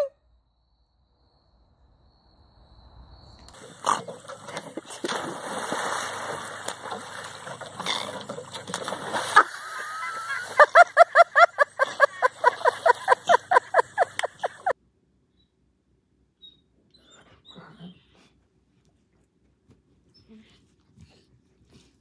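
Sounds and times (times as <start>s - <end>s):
water splashing and sloshing: 3.5s - 14.7s.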